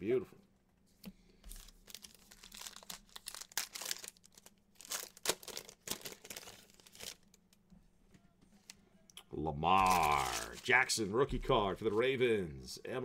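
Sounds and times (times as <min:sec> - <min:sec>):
foil wrapper crinkling: 0:01.5 - 0:07.6, 0:09.8 - 0:10.8.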